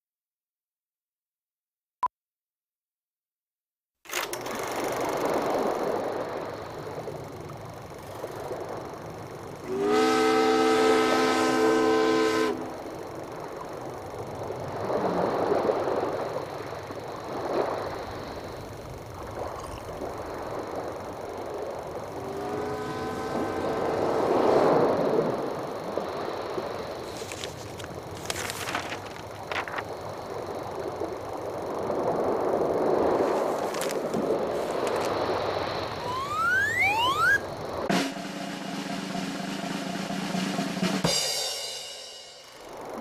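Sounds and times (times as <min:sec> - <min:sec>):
train horn: 0:09.7 - 0:12.9, 0:22.2 - 0:24.8, 0:37.9 - 0:39.2
train rushing by: 0:20.2 - 0:28.2, 0:30.4 - 0:43.0.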